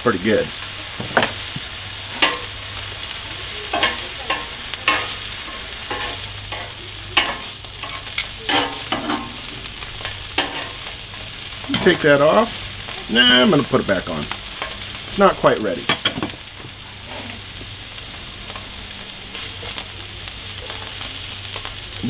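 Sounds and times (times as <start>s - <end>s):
food sizzling on a griddle: 0.0s - 22.0s
metal tongs clinking and scraping: 2.2s - 2.6s, 3.7s - 10.9s.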